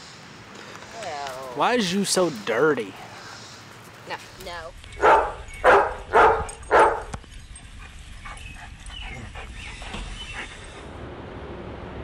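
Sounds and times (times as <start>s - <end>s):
dog barking: 5.0s - 7.1s.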